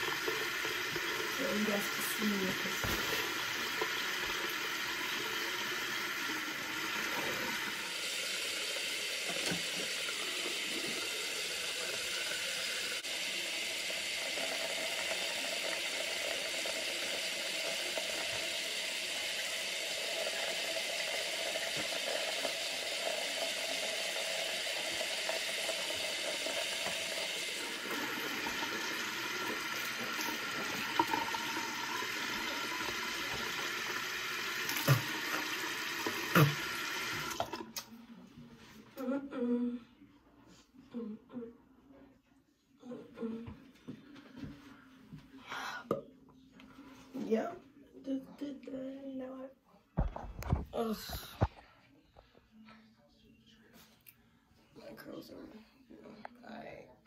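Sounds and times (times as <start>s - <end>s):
sink tap running: 0.0s - 37.6s.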